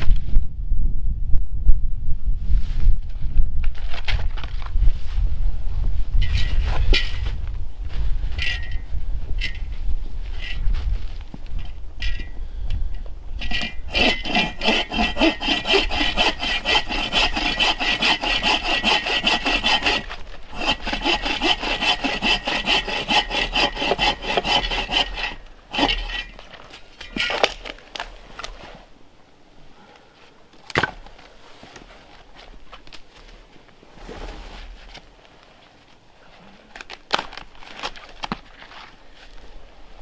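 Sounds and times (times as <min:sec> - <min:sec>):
hand saw cutting wood: 0:13.4 - 0:27.6.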